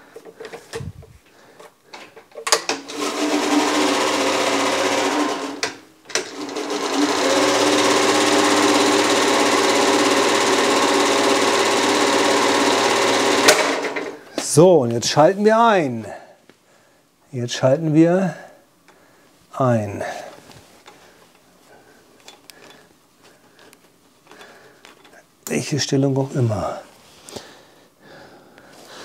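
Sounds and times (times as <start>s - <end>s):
electric mower whir: 2.5s - 14.2s.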